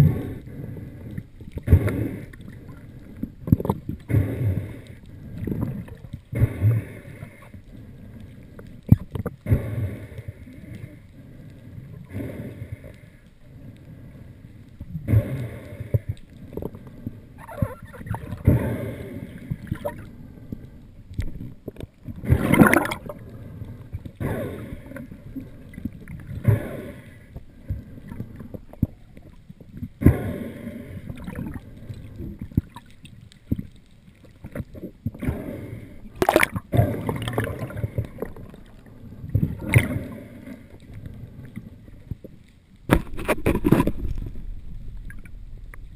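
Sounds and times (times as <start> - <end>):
muffled underwater water rush: 0.0 - 45.9
underwater surges knocks and scrapes: 0.0 - 45.9.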